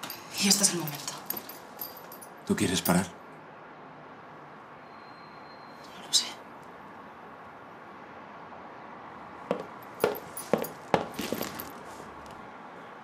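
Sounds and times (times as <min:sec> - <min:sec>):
light rustling: 0:09.5 - 0:12.4.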